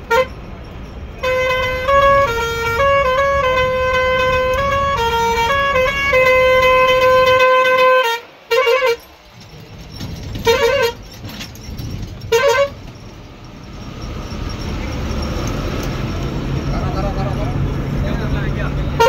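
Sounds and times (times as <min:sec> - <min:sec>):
bus musical horn: 0:00.0 - 0:00.5, 0:01.1 - 0:09.3, 0:10.2 - 0:11.5, 0:12.2 - 0:13.1, 0:18.8 - 0:19.0
bus rumbling on road: 0:00.0 - 0:19.0.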